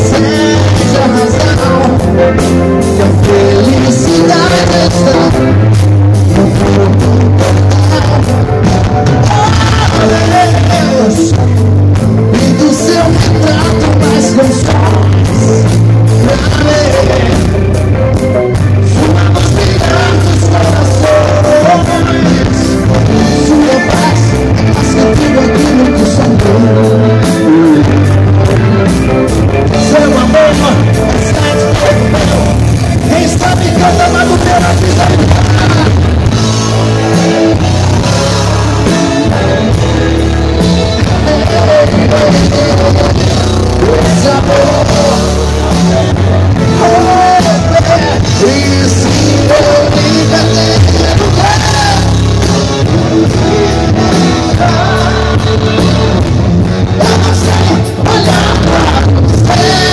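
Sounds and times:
drums: 0.0s - 59.9s
electric guitar: 0.0s - 59.9s
pulsing bass line: 0.0s - 59.9s.

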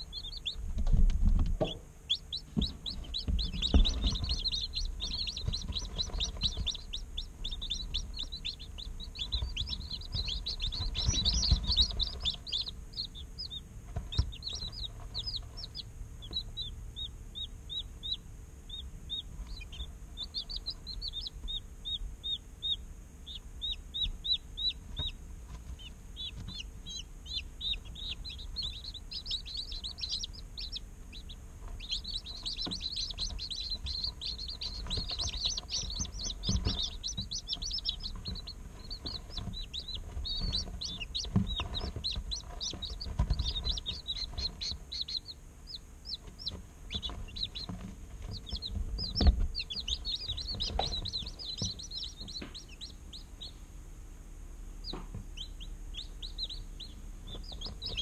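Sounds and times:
chicks peeping: 0.0s - 58.0s
low thumps: 0.6s - 13.2s.

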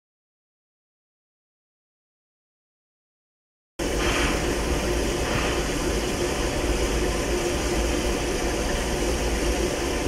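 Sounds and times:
steam hissing: 3.8s - 10.0s.

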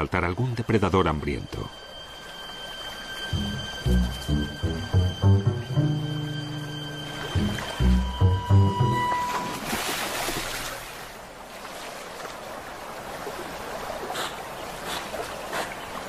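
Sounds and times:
background music held notes: 0.6s - 9.8s
rush of splashing water: 9.1s - 16.0s
soft splashes and lapping: 9.3s - 16.0s.

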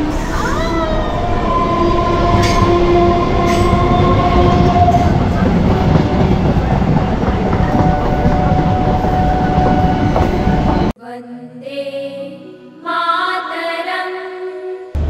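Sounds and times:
train rumbling: 0.0s - 11.0s
music: 7.6s - 15.0s.

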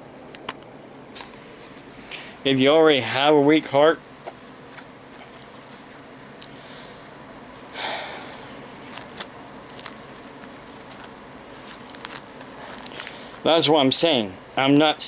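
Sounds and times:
man breathing through nose: 6.5s - 7.1s, 7.7s - 8.6s, 12.9s - 13.4s.

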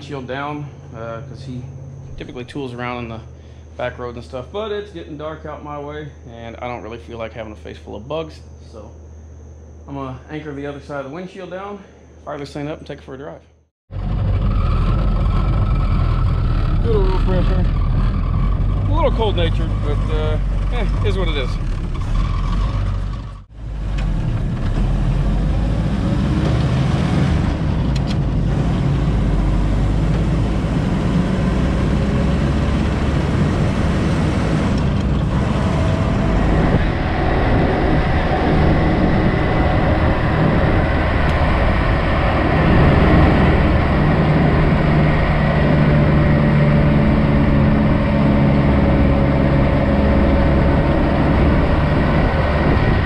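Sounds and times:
car engine running: 13.9s - 53.0s
wind and road noise: 13.9s - 53.0s.

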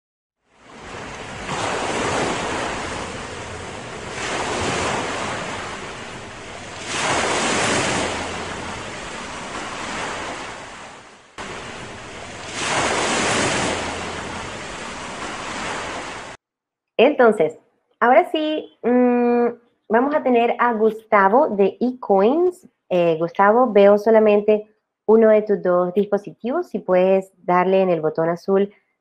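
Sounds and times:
ocean waves washing in: 0.4s - 16.4s.

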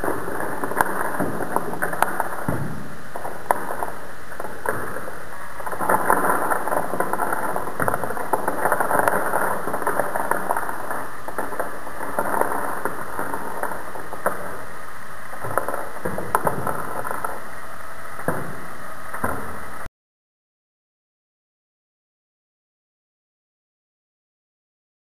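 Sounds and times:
wooden blocks toppling onto table: 0.0s - 17.5s.

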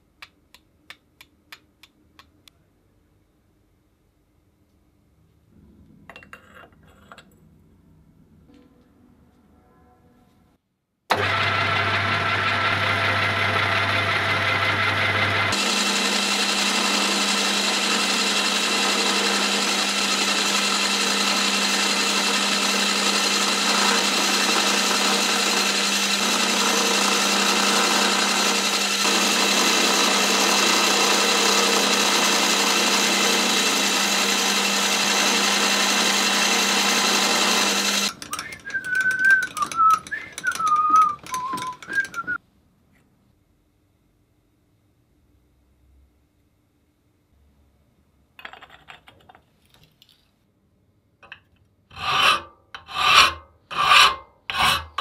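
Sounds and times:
milling machine cutting steel: 11.1s - 42.4s.

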